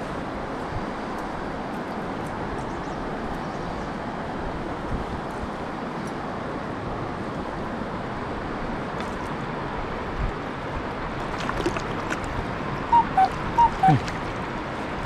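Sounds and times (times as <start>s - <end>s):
river flowing over stones: 7.8s - 15.0s.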